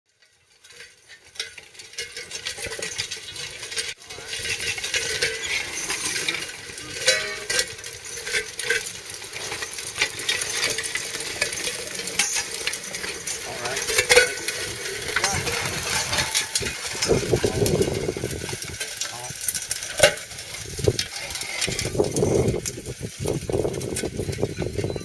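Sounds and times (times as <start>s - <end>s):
harness chains clinking and rattling: 0.2s - 25.0s.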